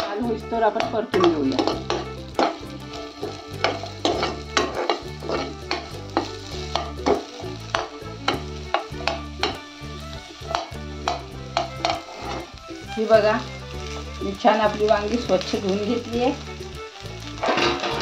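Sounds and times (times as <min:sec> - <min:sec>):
onion sizzling in oil: 0:00.0 - 0:18.0
spoon scraping a pan: 0:00.8 - 0:09.7, 0:10.4 - 0:16.2, 0:17.4 - 0:18.0.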